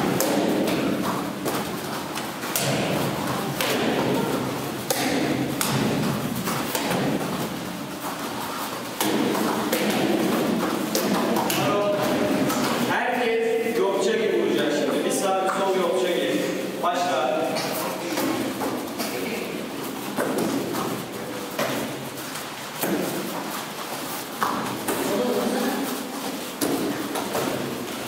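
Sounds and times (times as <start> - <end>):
bare feet stamping on mats: 0.0 - 13.0, 17.8 - 25.5, 26.2 - 28.0
voices in a hall: 0.6 - 28.0.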